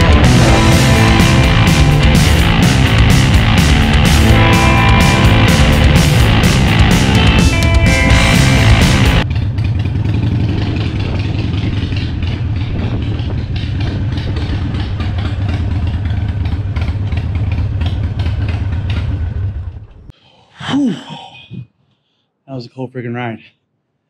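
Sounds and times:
rock music with electric guitar: 0.0s - 9.2s
motorcycle engine idling: 0.0s - 20.1s.

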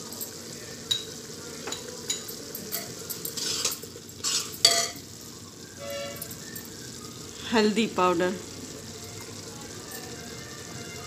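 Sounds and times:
metal spoon scraping a pot: 2.1s - 5.0s.

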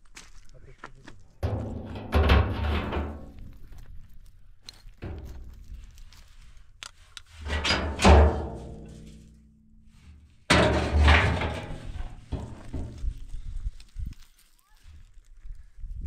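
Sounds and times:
hollow metallic booms: 1.4s - 3.4s, 7.5s - 9.4s, 10.5s - 13.2s
steel drum knocking on stony ground: 1.4s - 3.5s, 5.0s - 5.9s, 7.4s - 9.6s, 10.5s - 13.3s.

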